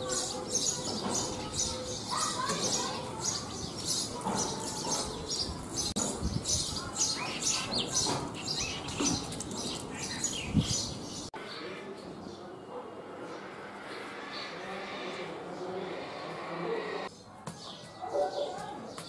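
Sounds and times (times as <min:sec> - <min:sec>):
sparrows chirping: 0:00.0 - 0:12.6, 0:17.0 - 0:19.0.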